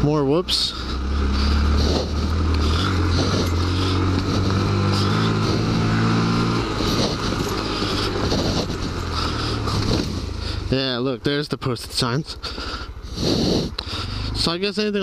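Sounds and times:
motorcycle engine revving: 0.0 - 15.0
wind noise on microphone: 5.4 - 9.1, 9.7 - 10.4.

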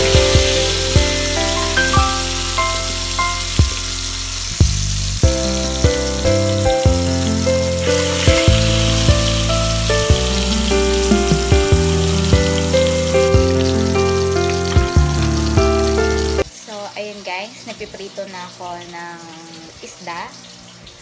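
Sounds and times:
background music: 0.0 - 16.4
fish frying in hot oil: 0.0 - 21.0.

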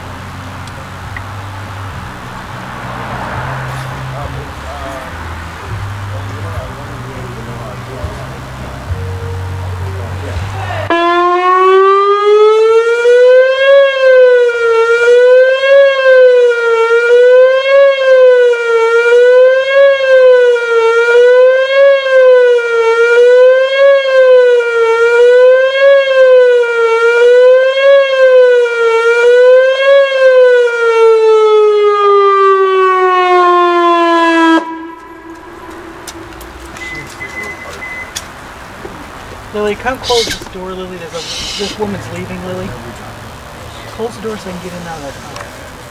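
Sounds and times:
warning siren wailing: 7.4 - 45.1.

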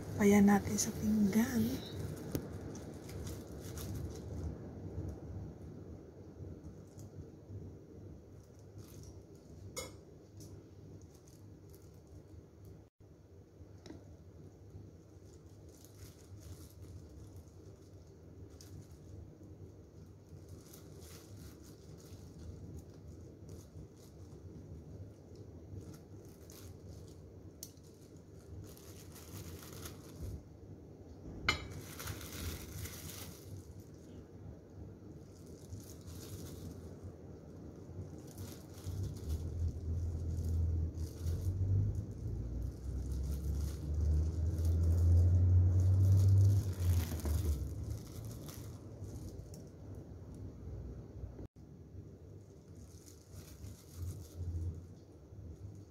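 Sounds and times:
plastic glove crinkling: 0.0 - 12.9, 13.5 - 50.9, 52.0 - 55.9
low rumble: 28.2 - 51.5.

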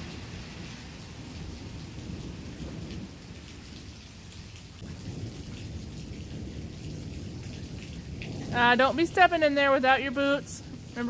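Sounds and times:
low rumble of thunder: 0.0 - 11.0
steady rain falling: 0.0 - 11.0.

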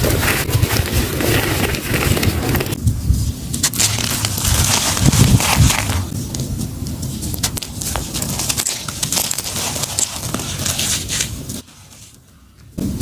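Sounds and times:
charcoal crumbling in hands: 3.5 - 11.6.

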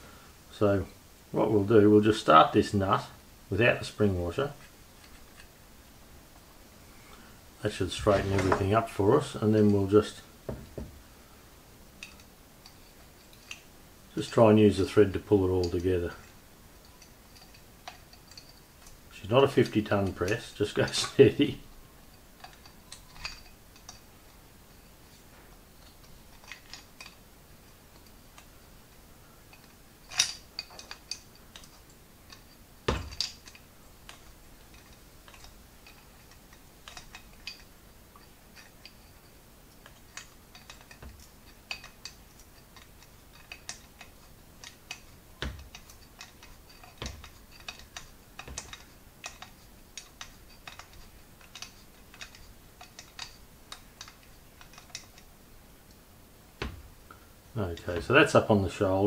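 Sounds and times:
metal knocks: 10.5 - 11.0, 32.9 - 33.3
spanner clicking on metal: 29.5 - 55.3.

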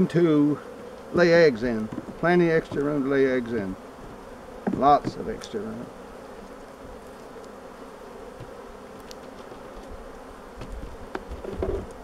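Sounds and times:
honeybees buzzing: 0.0 - 12.0
faint knocks: 4.6 - 5.4.

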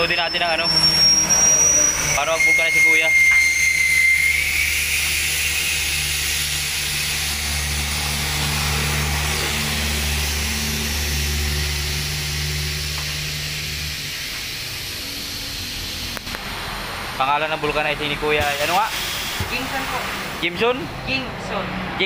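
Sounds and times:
low motor hum: 0.0 - 22.0
compressed air hissing: 3.7 - 17.2, 18.4 - 20.5.

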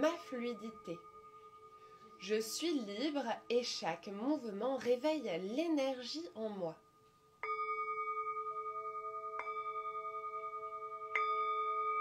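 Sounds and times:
singing bowl struck and ringing: 0.0 - 3.6, 6.8 - 12.0.

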